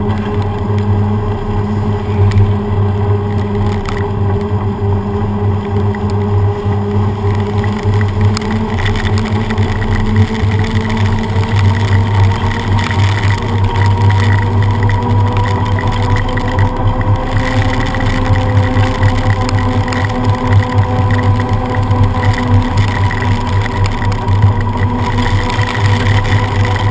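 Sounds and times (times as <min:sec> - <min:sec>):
bicycle tyres hissing on wet road: 0:00.0 - 0:26.9
hum rising in pitch: 0:00.0 - 0:26.9
low traffic drone: 0:00.0 - 0:26.9.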